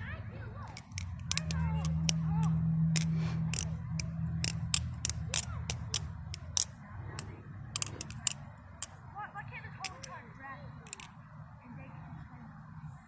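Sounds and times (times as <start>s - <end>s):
butterfly knife handles clicking: 0.6s - 9.0s, 9.8s - 10.2s, 10.8s - 11.2s.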